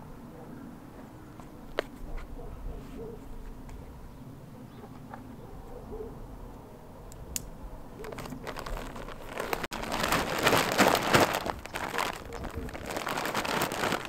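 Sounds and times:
compost rustling and scraping: 0:08.0 - 0:14.0.

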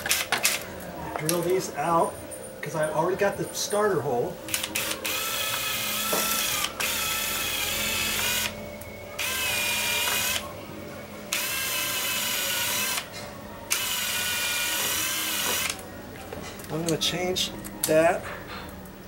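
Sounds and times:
cordless drill running: 0:04.5 - 0:08.5, 0:09.2 - 0:10.4, 0:11.3 - 0:13.1, 0:13.7 - 0:15.8.

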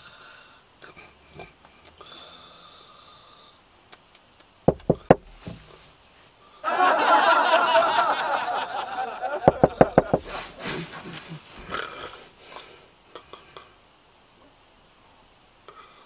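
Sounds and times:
knocks on car window: 0:04.7 - 0:05.7, 0:09.5 - 0:10.4.

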